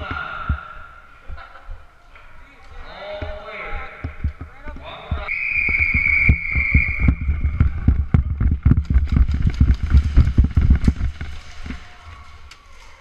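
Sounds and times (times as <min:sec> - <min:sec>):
camera thumping and rumble: 0:03.2 - 0:11.8.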